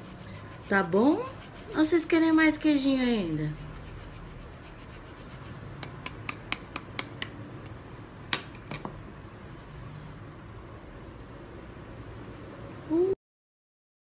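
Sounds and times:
sharp taps of grater: 5.8 - 7.4.

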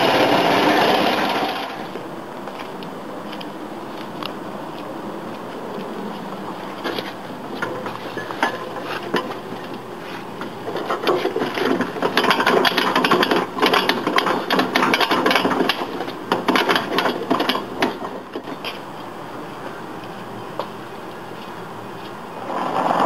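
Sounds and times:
metal plough mount rattling: 10.7 - 18.5.

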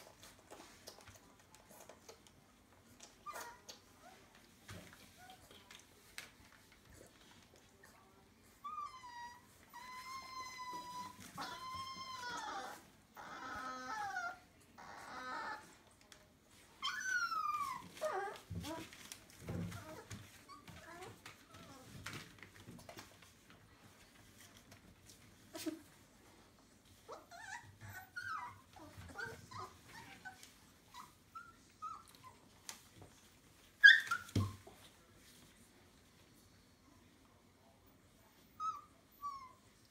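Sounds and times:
puppy whining: 0.0 - 6.1, 6.9 - 23.2, 24.3 - 34.9, 38.5 - 39.9
puppies whimpering: 8.6 - 15.7, 27.1 - 32.4.

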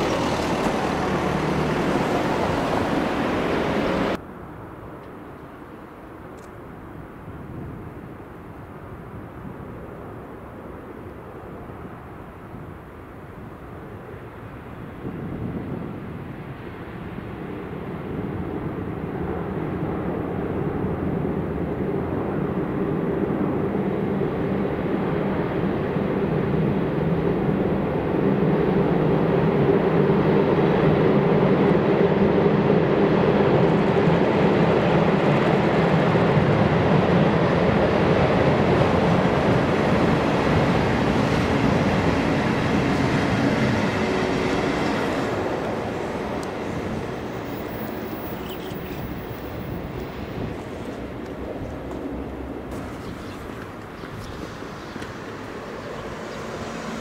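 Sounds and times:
locomotives rumbling over bridge: 0.0 - 4.2, 19.0 - 57.0.

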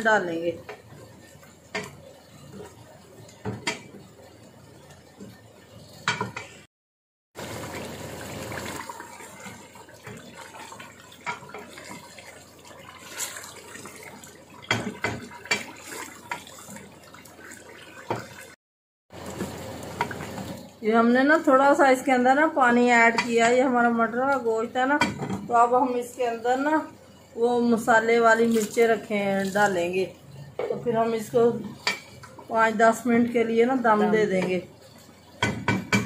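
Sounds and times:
curry bubbling and sizzling: 0.0 - 6.7, 7.4 - 36.0
spoon stirring and scraping pot: 9.4 - 18.3, 31.6 - 32.4
spoon knocking against pot: 35.4 - 36.0.

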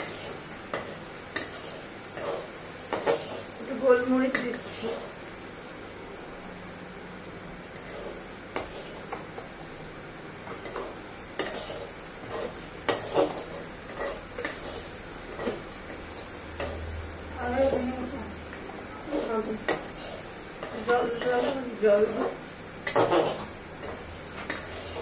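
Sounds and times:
spatula scraping a pan: 0.0 - 3.6, 4.2 - 5.2, 7.8 - 9.5, 10.4 - 16.8, 19.0 - 25.0
low sizzle: 0.0 - 25.0.

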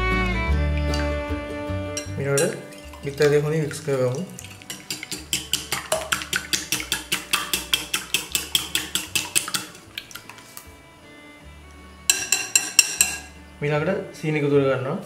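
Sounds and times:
wire whisk clicking in bowl: 4.7 - 9.8, 12.1 - 13.3.

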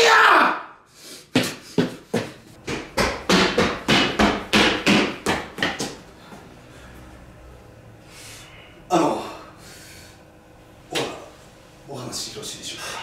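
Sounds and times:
rapid sharp knocks: 2.7 - 6.0.

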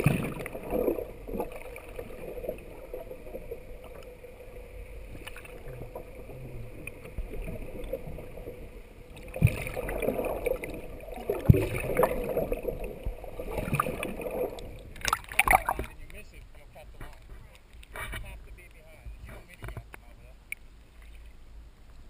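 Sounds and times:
faint steady hum: 0.0 - 22.0
underwater water sloshing: 0.0 - 22.0.

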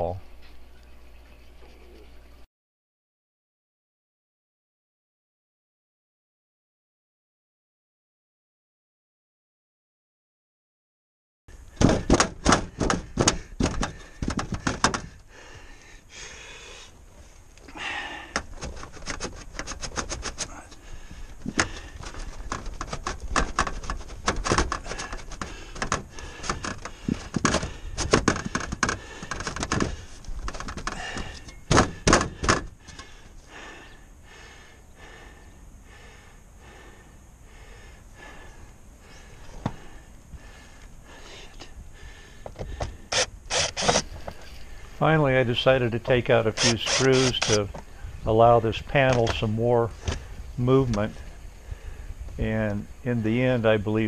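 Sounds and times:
handling noise: 11.7 - 15.2, 18.3 - 33.2.

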